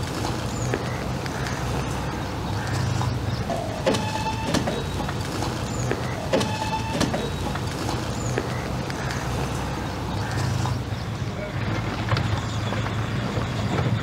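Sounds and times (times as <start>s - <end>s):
machine motor running: 0.0s - 12.0s
mechanical squeal and knock: 2.7s - 8.4s.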